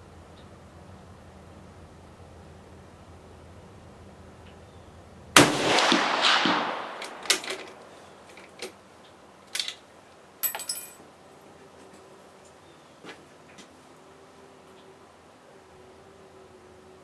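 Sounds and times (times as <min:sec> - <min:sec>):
rifle shot with echo: 0:05.4 - 0:08.0
small clicks: 0:06.9 - 0:09.8.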